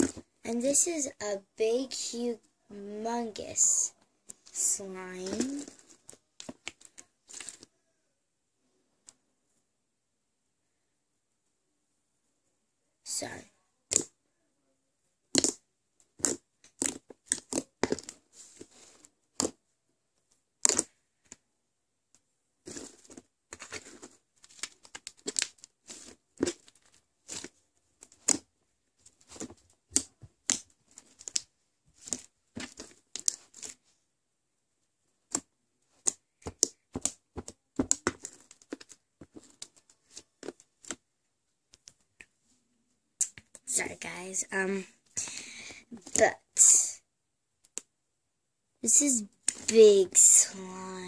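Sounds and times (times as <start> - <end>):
foam-bead slime crackling and squelching: 0.0 - 7.7, 13.1 - 14.2, 15.3 - 19.6, 20.6 - 21.4, 22.6 - 34.0, 35.2 - 41.1, 43.2 - 47.0, 48.8 - 51.0.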